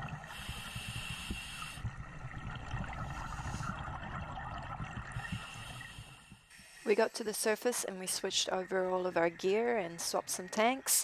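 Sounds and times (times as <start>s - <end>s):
underwater exhaled bubbles: 0.0s - 6.6s
moving water underwater: 0.0s - 6.9s.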